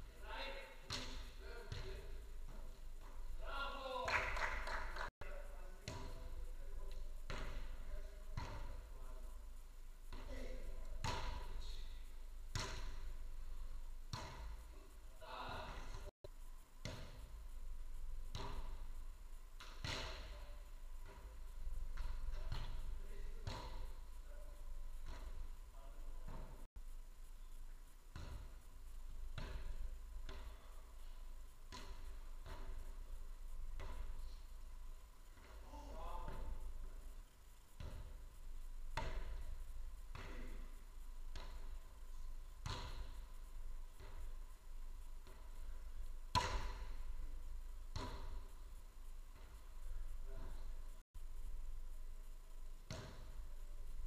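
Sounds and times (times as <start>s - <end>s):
ball thumps: 12.5s - 13.2s, 14.1s - 14.6s, 19.6s - 24.0s, 31.7s - 34.2s, 37.8s - 38.3s, 42.6s - 43.3s, 46.3s - 47.3s, 47.9s - 48.5s, 52.9s - 53.4s
ball hit thuds with echo: 46.3s - 47.0s, 47.9s - 48.4s, 52.9s - 53.4s.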